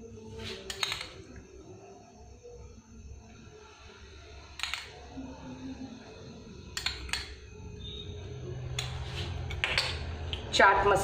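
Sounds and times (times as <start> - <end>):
metal spoon clicking on plastic bowl: 6.8 - 7.4.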